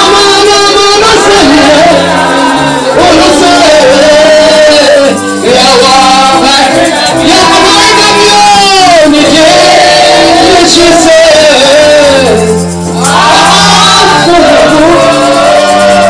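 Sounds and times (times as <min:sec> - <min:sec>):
band accompaniment: 0:00.0 - 0:16.0
women singing gospel: 0:01.4 - 0:12.3.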